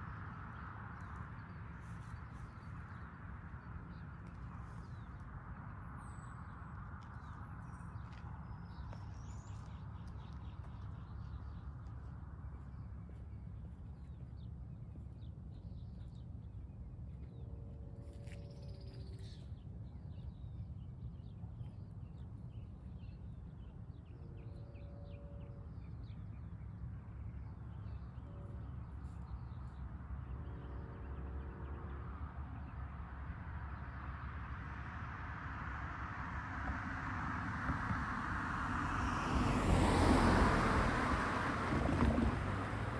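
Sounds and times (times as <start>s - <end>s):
distant train horn blasts: 17.4s - 19.4s, 24.1s - 26.4s, 28.0s - 33.4s.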